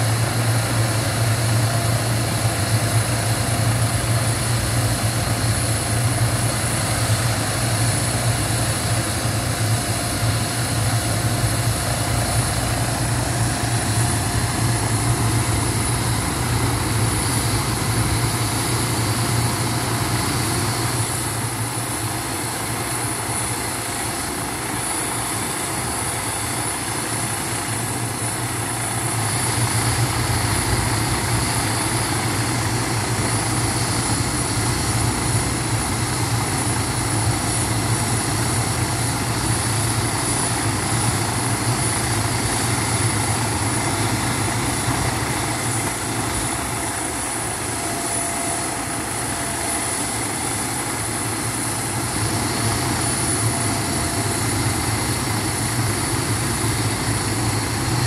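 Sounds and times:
helicopter rotor hum: 0.0 - 58.0
helicopter turbine whine: 0.0 - 58.0.

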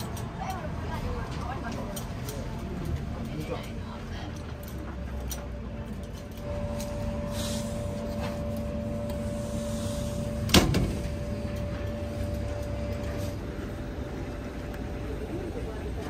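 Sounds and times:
vending machine electric hum: 0.0 - 16.0
machine door clack: 10.4 - 13.3.

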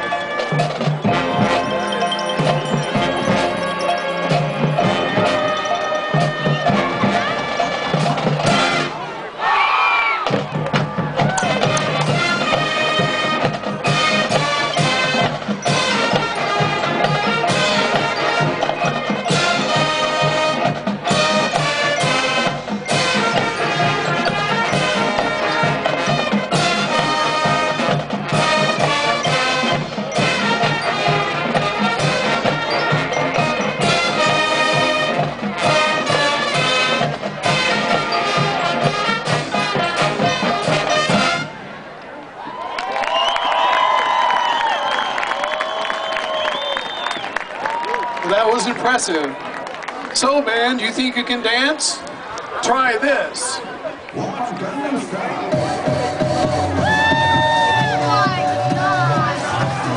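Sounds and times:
marching band playing: 0.0 - 41.9, 54.4 - 59.9.

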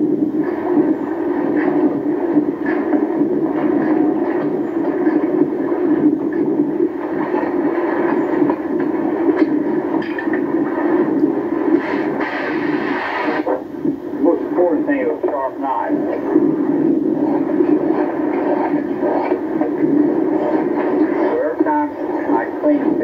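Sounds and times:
mechanical rumbling drone: 0.0 - 23.0.

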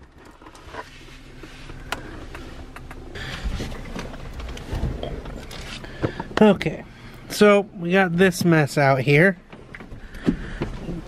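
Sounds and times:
rustling and handling noise: 0.0 - 6.4.

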